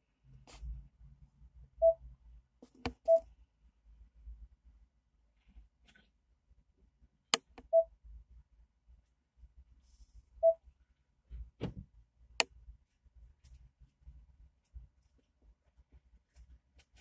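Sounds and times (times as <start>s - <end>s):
short electronic beeps: 3.0s - 3.3s, 10.4s - 10.6s.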